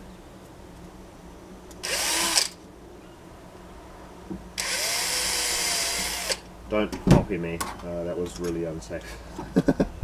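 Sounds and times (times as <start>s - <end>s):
power drill drilling into metal: 1.8s - 2.6s, 4.6s - 6.4s.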